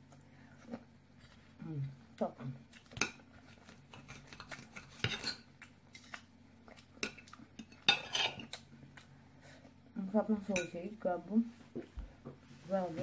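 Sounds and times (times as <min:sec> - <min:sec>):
cutlery scraping on ceramic plate: 0:03.9 - 0:05.4, 0:07.0 - 0:08.6.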